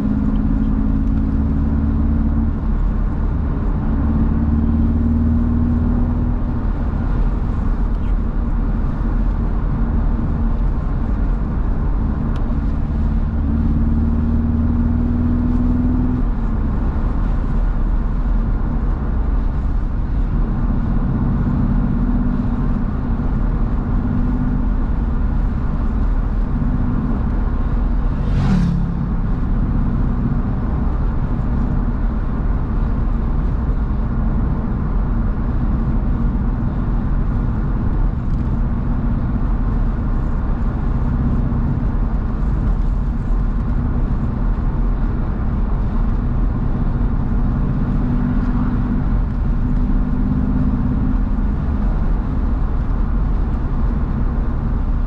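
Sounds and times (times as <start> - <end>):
car engine drone: 0.0 - 55.0
road and wind rumble: 0.0 - 55.0
brief whoosh: 28.0 - 29.5.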